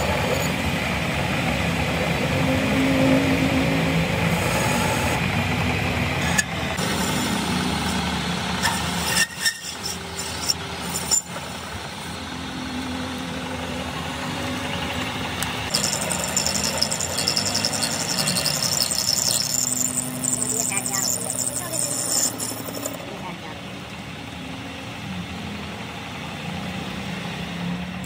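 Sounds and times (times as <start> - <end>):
metal lathe cutting hum: 2.6 - 12.3, 15.4 - 23.0
bright rapid rattle: 15.7 - 23.0.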